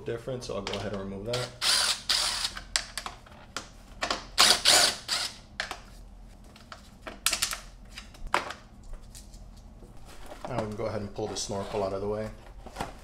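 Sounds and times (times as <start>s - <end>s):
cordless drill running: 1.4s - 2.6s, 4.4s - 5.4s.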